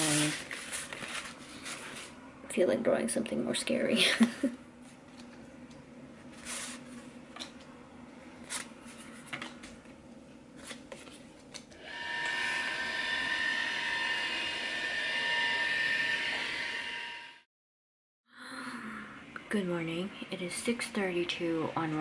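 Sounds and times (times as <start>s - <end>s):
scanner motor whine: 11.8s - 17.4s.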